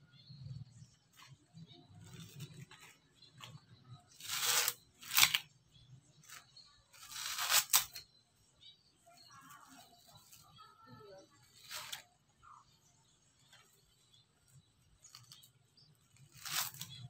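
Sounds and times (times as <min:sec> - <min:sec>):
fibres rustling: 0:01.1 - 0:05.5, 0:06.2 - 0:08.0, 0:09.4 - 0:12.1, 0:13.4 - 0:17.0
coconut fibre ripping: 0:03.4 - 0:05.5, 0:07.0 - 0:08.0, 0:11.5 - 0:12.1, 0:16.1 - 0:17.0.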